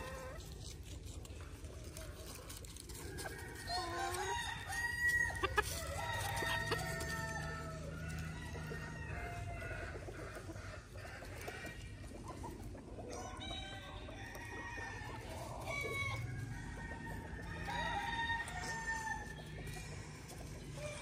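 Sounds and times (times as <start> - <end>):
hens clucking: 0.0 - 21.0
roosters crowing: 0.0 - 21.0.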